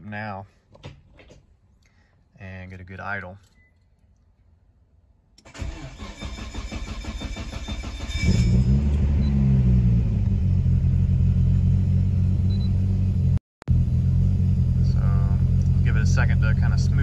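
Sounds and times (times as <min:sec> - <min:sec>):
engine cranking on starter: 0:05.4 - 0:09.2
engine starting and idling: 0:05.4 - 0:09.6.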